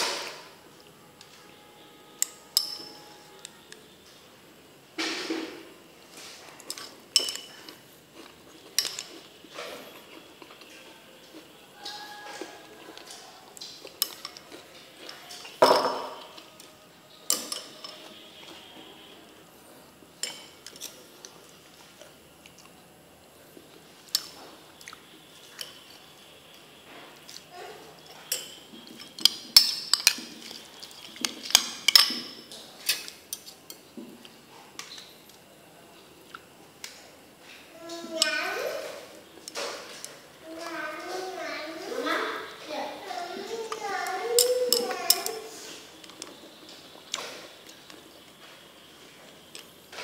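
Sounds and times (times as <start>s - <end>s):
metal spoon clinking in ceramic bowl: 2.2s - 3.2s, 6.8s - 7.6s, 17.3s - 18.1s, 28.3s - 30.2s, 31.4s - 33.5s.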